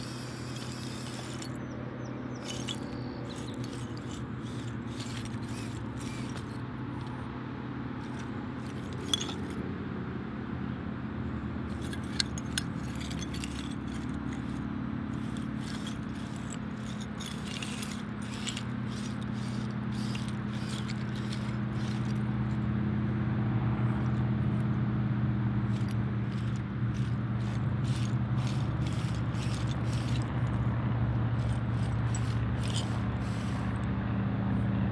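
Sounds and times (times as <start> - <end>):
toy car electric motor humming: 0.0 - 1.6, 2.4 - 7.3, 8.0 - 9.6, 11.7 - 22.7, 25.6 - 30.7, 31.4 - 33.9
tile shards clinking and scraping: 2.4 - 7.1, 8.1 - 9.6, 11.7 - 14.6, 15.2 - 22.2, 25.8 - 30.3, 31.4 - 33.6.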